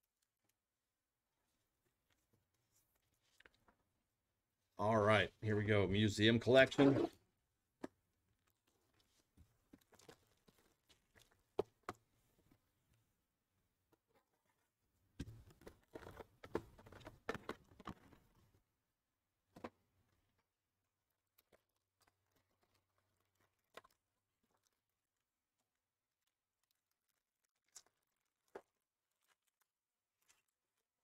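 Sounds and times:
cardboard rustling and clicking: 0:15.2 - 0:18.5.

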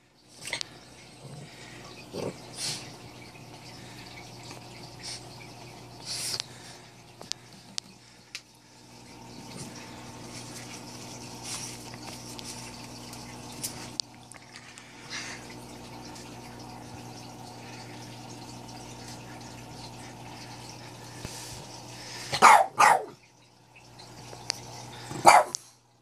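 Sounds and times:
filter motor hum: 0:00.0 - 0:26.0
water trickling: 0:00.0 - 0:26.0
dog barking: 0:22.3 - 0:23.2, 0:25.2 - 0:25.6.

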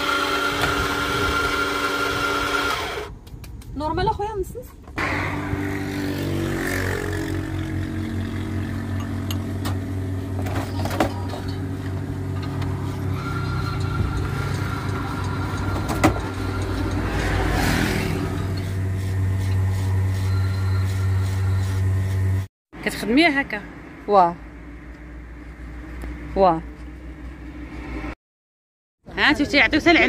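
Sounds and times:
espresso machine pump humming: 0:00.0 - 0:03.0.

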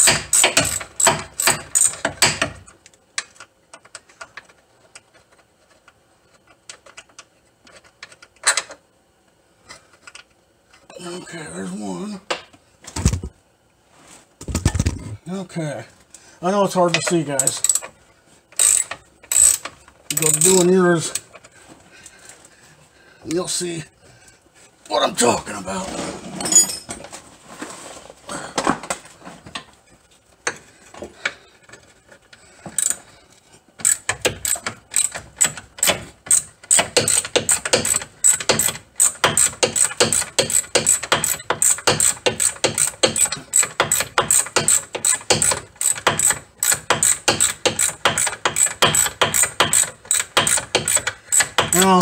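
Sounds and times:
ratchet wrench clicking: 0:00.0 - 0:02.0, 0:16.9 - 0:18.0, 0:18.6 - 0:21.2, 0:32.8 - 0:33.0, 0:33.8 - 0:52.0.

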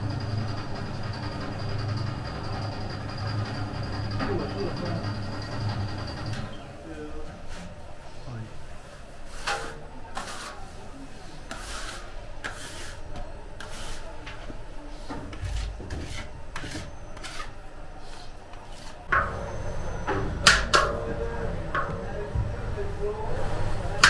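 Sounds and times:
scraper scraping steel bowl: 0:09.3 - 0:10.8, 0:11.4 - 0:14.2, 0:15.3 - 0:19.1.

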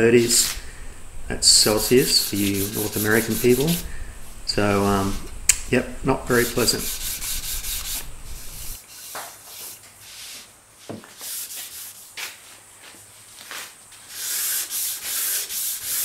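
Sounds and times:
sandpaper rasping on wood: 0:00.2 - 0:00.7, 0:01.4 - 0:03.9, 0:06.3 - 0:10.4, 0:11.2 - 0:12.3, 0:14.1 - 0:16.0.

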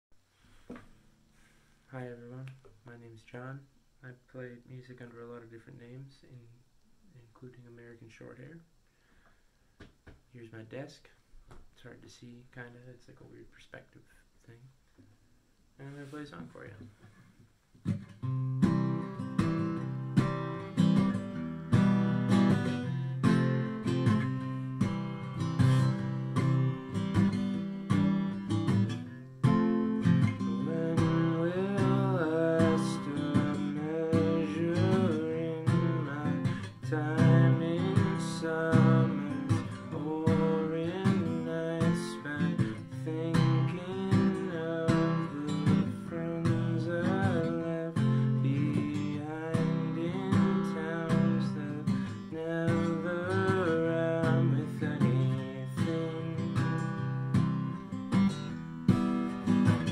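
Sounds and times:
acoustic guitar strumming: 0:17.8 - 0:59.9
man singing: 0:30.4 - 0:57.3.

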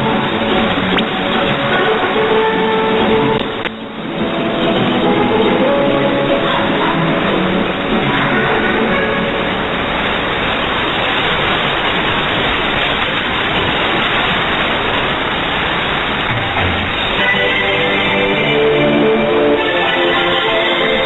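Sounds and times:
music on radio: 0:00.0 - 0:09.8, 0:17.1 - 0:21.0.

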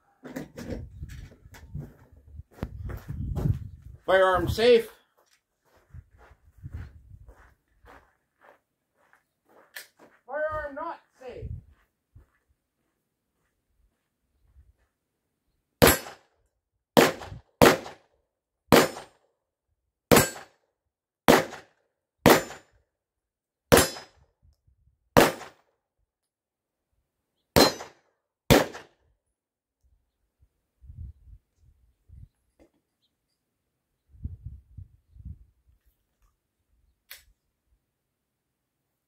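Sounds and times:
pistol shots with short echo: 0:17.0 - 0:18.0, 0:18.7 - 0:19.1, 0:21.3 - 0:22.6, 0:23.7 - 0:24.1, 0:25.2 - 0:25.6, 0:27.6 - 0:29.0.

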